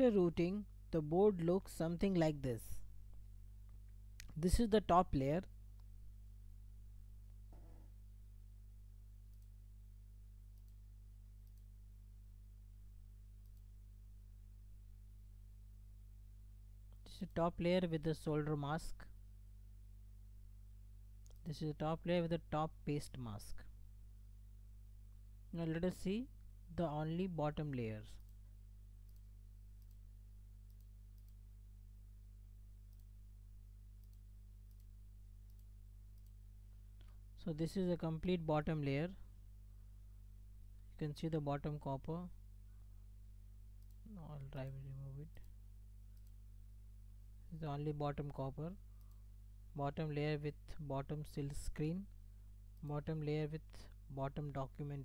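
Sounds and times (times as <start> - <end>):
steady low hum: 0.0 - 55.0
faint computer mouse clicks: 11.4 - 11.7, 29.0 - 30.0, 30.6 - 31.4, 34.0 - 36.4, 45.3 - 46.4.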